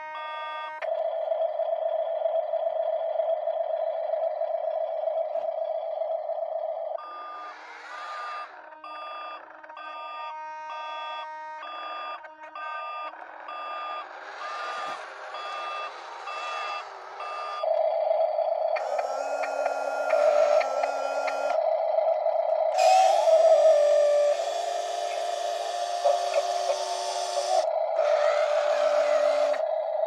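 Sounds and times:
reversing beeper: 0.0s - 30.0s
steady multi-tone hum: 14.0s - 30.0s.

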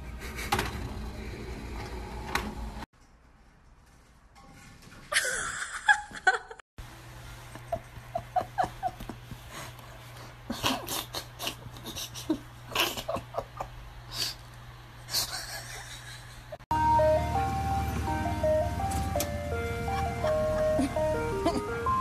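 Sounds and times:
person laughing: 5.1s - 6.6s, 7.6s - 9.2s, 10.5s - 14.2s, 15.1s - 16.6s, 19.8s - 22.0s.

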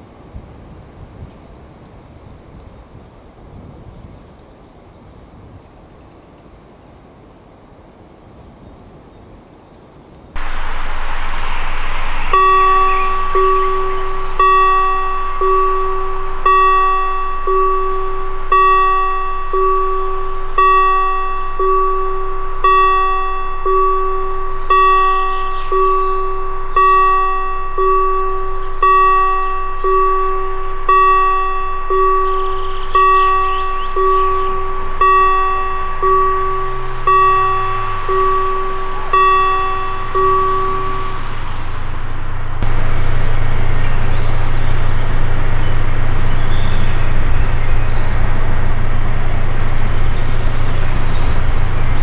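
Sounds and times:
rushing noise: 10.4s - 52.0s
level crossing bell ringing: 12.3s - 42.8s.

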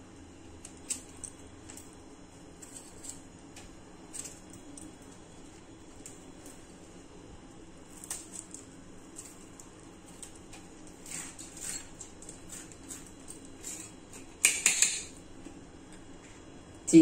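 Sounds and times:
knife scraping chillies: 10.1s - 15.1s.

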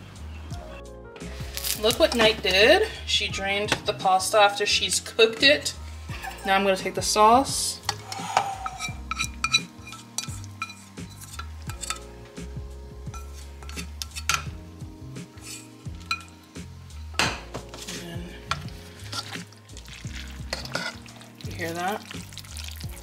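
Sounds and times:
utensil scraping in a pot: 6.0s - 6.9s, 7.8s - 12.2s, 13.1s - 14.5s, 15.2s - 16.6s, 17.7s - 23.0s
whisk scraping a skillet: 6.1s - 6.7s, 8.0s - 12.1s, 13.2s - 14.5s, 15.3s - 16.3s, 17.8s - 22.8s.

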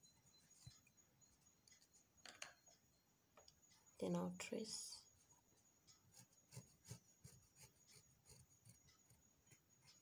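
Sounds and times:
pencil scratching on fabric: 5.1s - 10.0s.

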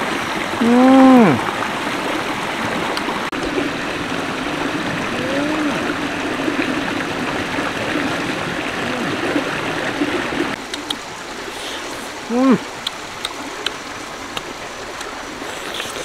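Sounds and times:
stream running over rocks: 0.0s - 16.0s.

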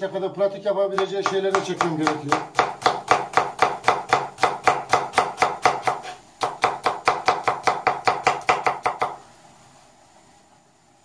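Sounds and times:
knife chopping on plastic board: 1.0s - 9.2s.

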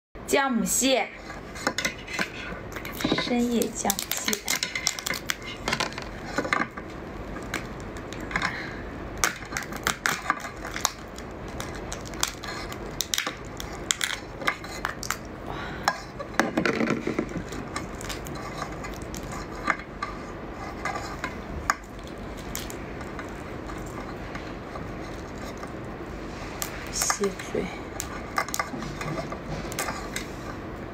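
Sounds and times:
crab shell cracking and clicking: 2.7s - 20.2s, 20.8s - 26.0s, 27.9s - 28.8s.

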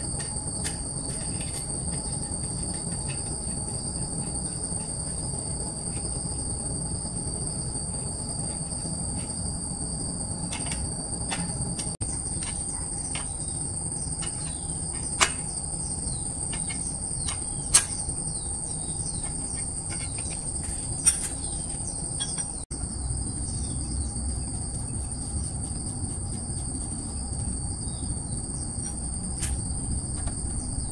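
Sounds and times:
insect chorus whining: 0.0s - 30.9s.

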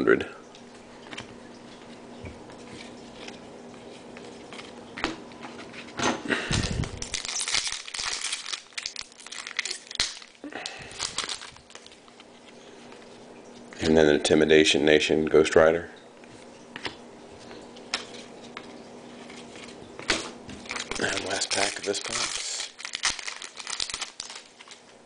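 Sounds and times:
foil wrapper tearing and crinkling: 6.5s - 12.3s, 19.3s - 24.9s.

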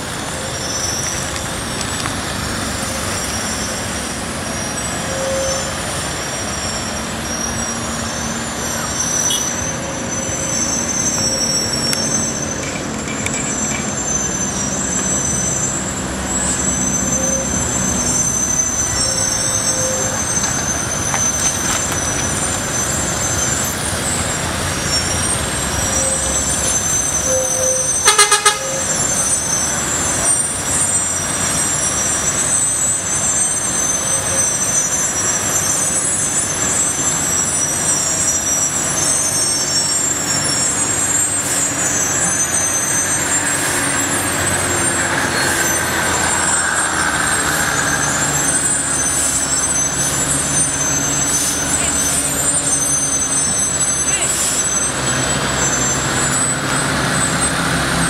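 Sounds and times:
cars passing: 0.0s - 58.0s
road noise: 0.0s - 58.0s
truck diesel engine running: 0.0s - 58.0s
horn toot: 26.8s - 29.6s.

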